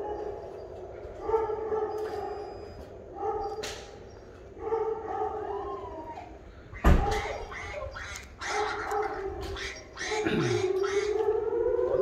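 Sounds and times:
dog howling: 0.0s - 3.6s, 4.6s - 12.0s.

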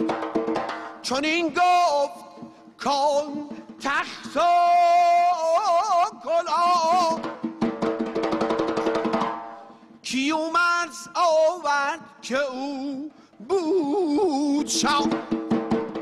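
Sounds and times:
quick even drumming: 0.0s - 10.2s, 13.5s - 16.0s
person singing with vibrato: 0.8s - 7.3s, 10.0s - 15.4s.

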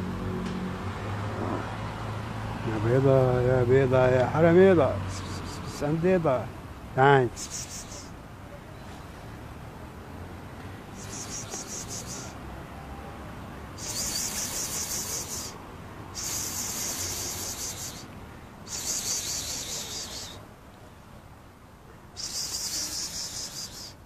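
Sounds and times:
insect trills: 7.4s - 8.1s, 11.0s - 12.4s, 13.8s - 15.6s, 16.2s - 18.1s, 18.7s - 20.4s, 22.2s - 24.0s.

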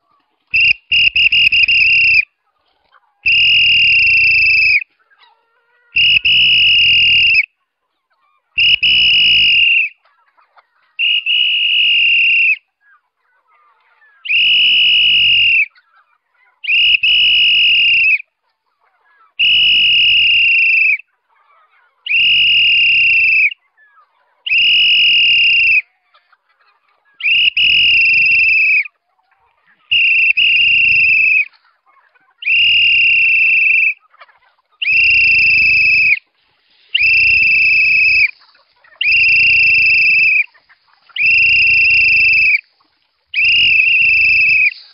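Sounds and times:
high whistle blasts: 0.5s - 2.2s, 3.3s - 4.8s, 6.0s - 7.5s, 8.6s - 9.9s, 11.0s - 12.6s, 14.3s - 15.7s, 16.7s - 18.2s, 19.4s - 21.0s, 24.5s - 25.8s, 27.2s - 28.8s, 29.9s - 31.5s, 32.5s - 34.0s, 34.8s - 36.2s, 37.0s - 38.3s, 39.0s - 40.5s, 41.2s - 42.6s, 43.4s - 44.8s.

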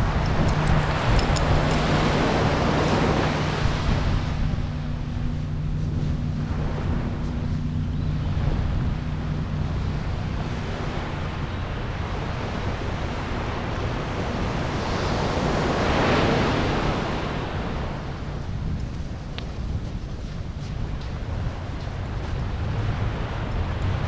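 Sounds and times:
wind buffeting microphone: 0.0s - 24.0s
surf breaking on beach: 8.4s - 18.2s.

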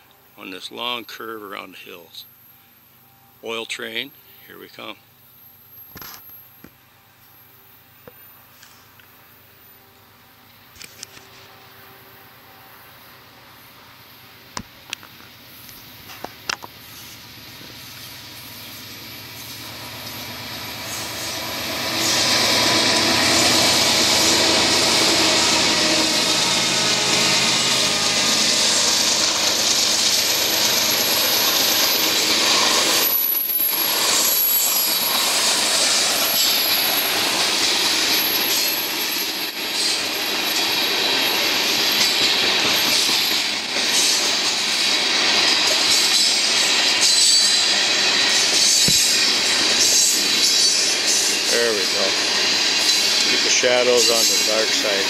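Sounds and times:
diesel locomotives accelerating: 8.8s - 55.0s
high wheel squeal: 16.8s - 55.0s.

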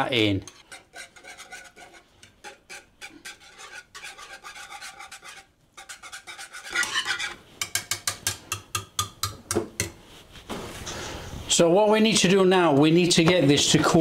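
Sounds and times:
whisk beating in saucepan: 0.4s - 9.9s.

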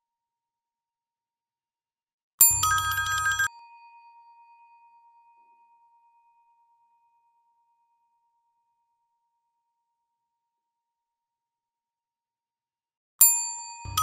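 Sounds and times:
bell ringing tone: 2.5s - 3.5s.

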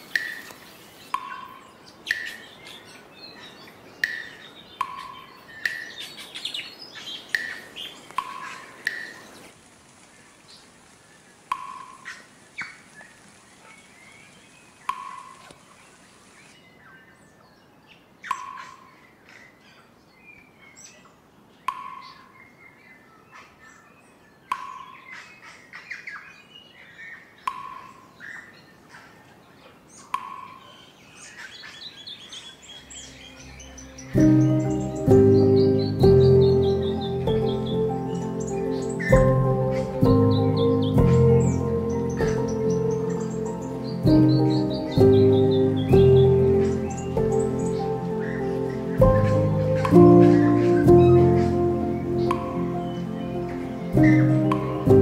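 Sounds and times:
faint bird chirps: 10.5s - 55.0s
music: 32.9s - 55.0s.

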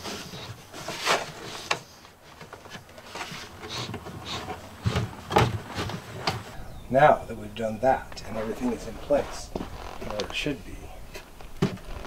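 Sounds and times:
dull thumps: 2.4s - 6.6s.

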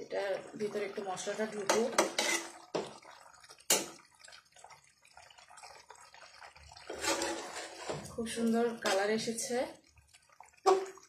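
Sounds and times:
wet scraping in pan: 1.6s - 4.0s, 5.6s - 9.5s.

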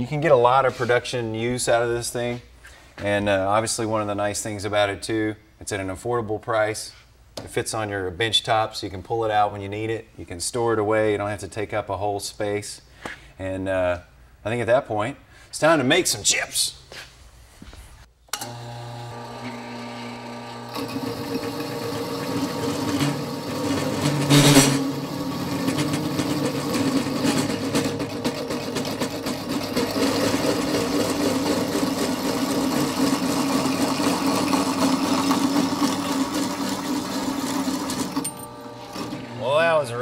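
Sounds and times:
hole saw cutting metal tube: 19.2s - 39.3s
motor humming: 31.6s - 39.6s.

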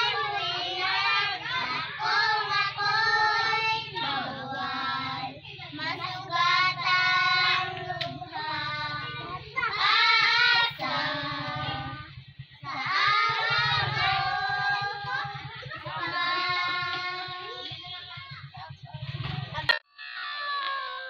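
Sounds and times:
children singing unaccompanied: 0.0s - 19.7s.

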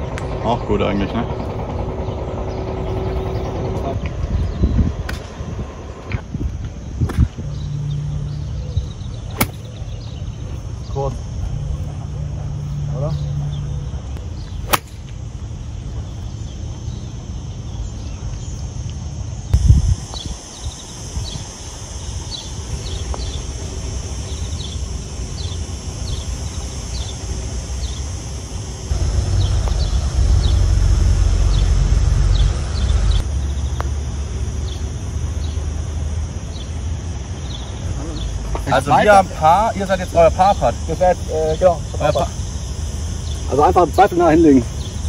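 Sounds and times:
high insect buzz: 1.4s - 45.0s
low rumble: 28.8s - 35.1s.

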